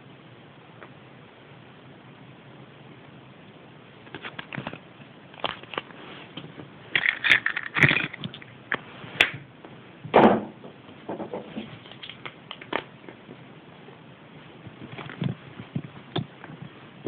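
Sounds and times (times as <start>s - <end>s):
plastic crinkling: 4.1s - 8.8s
plastic toy pieces clicking: 7.0s - 8.4s.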